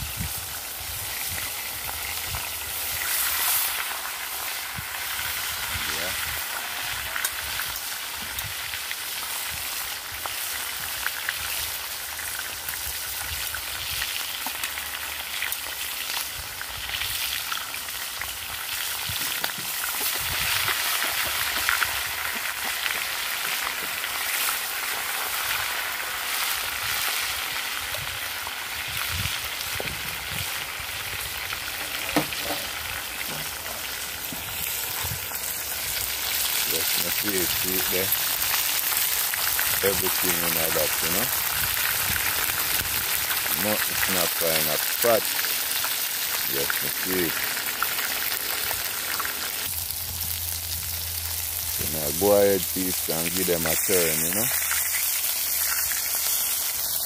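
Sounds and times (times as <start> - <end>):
fish sizzling in hot oil: 0.0 - 57.0
oil crackles and pops: 0.0 - 57.0.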